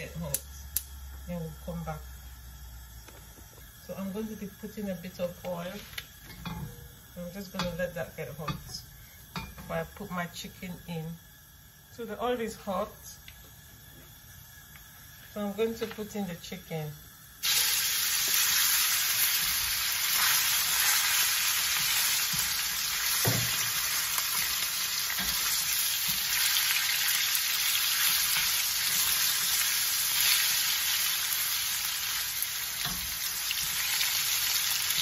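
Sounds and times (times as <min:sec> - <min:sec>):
chicken sizzling in hot oil: 0:12.8 - 0:35.0.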